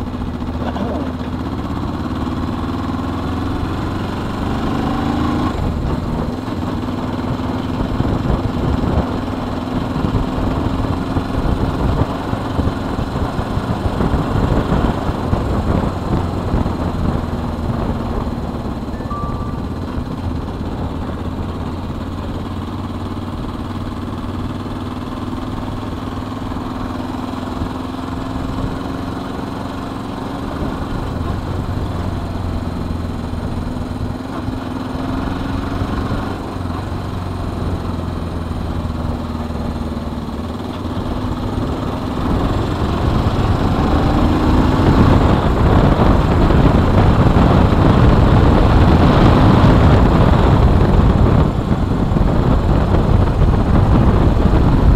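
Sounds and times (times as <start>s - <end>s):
motorcycle engine running: 0.0s - 54.9s
wind rush on microphone: 5.3s - 19.0s, 40.3s - 54.9s.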